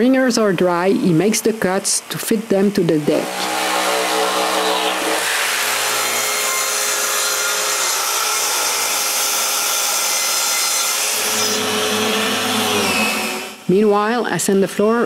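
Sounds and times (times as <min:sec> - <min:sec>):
track saw cutting wood: 0:01.9 - 0:13.7.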